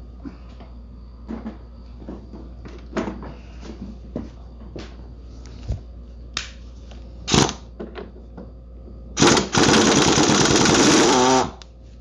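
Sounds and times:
pneumatic impact wrench hammering: 7.3s - 7.6s, 9.2s - 11.6s
impact wrench whine: 7.3s - 8.1s, 9.2s - 11.7s.

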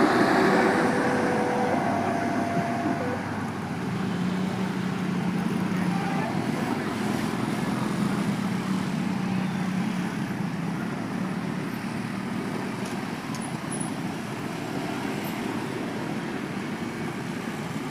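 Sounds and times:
motorbikes and scooters passing: 0.0s - 12.8s
low engine hum: 0.0s - 17.9s.

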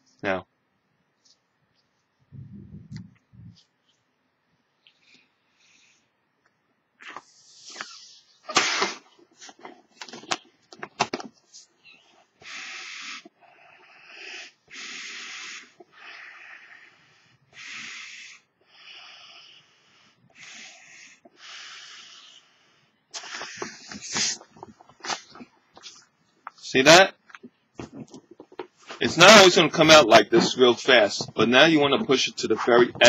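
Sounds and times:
balloon sputtering clicks: 8.5s - 9.1s
breaths blown into balloon: 20.4s - 25.4s.

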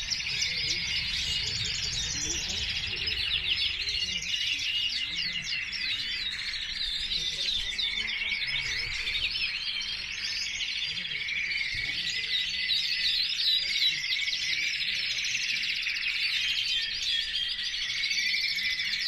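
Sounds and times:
canaries singing: 0.0s - 19.0s.

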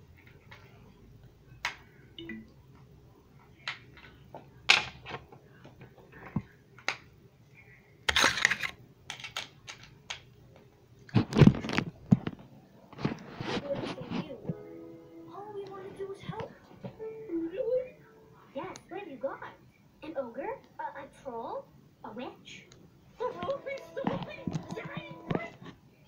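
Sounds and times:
rustling scrape: 12.9s - 14.5s.

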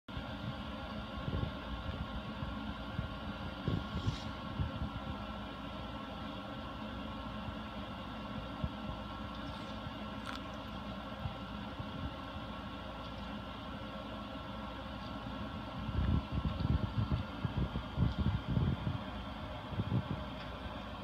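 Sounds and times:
steady low hum: 0.1s - 21.0s
cat chewing celery: 9.3s - 10.7s.

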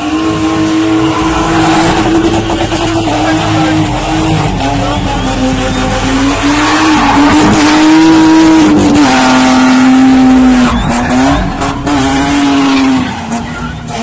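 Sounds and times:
car engine at high revs: 0.0s - 14.0s
tyres squealing on tarmac: 0.1s - 14.0s.

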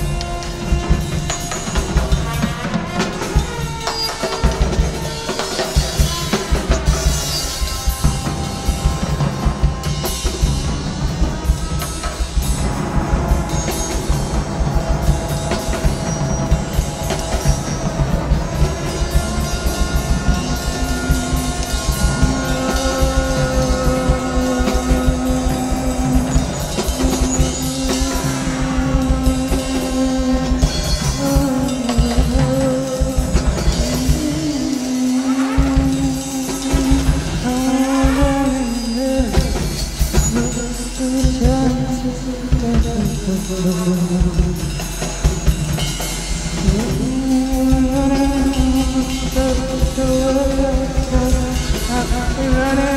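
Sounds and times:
brass horn long notes: 0.0s - 40.6s
drum kit playing: 0.0s - 52.9s.

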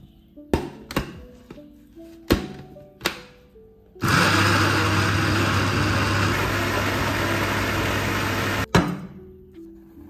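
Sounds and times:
blender motor whirring: 4.0s - 8.7s.

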